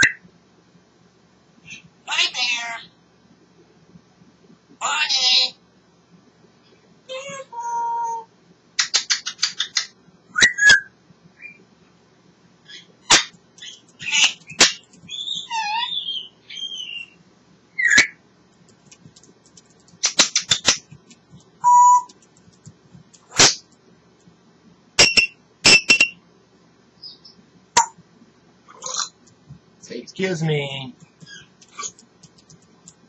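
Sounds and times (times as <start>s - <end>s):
parrot whistles: 10.3s - 11.6s
parrot warble: 12.6s - 17.2s, 28.7s - 29.2s, 31.2s - 32.5s
parrot rapid clicks: 18.6s - 23.6s, 31.0s - 33.0s.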